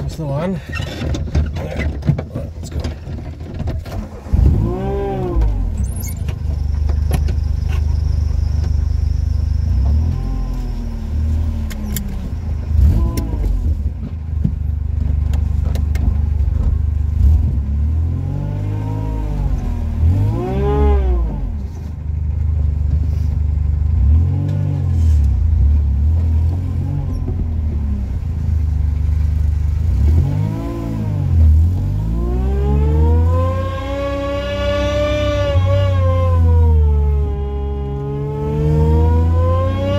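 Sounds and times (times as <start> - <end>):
car engine revving: 3.8 - 7.8, 9.5 - 14.0, 15.0 - 21.9, 23.9 - 39.9.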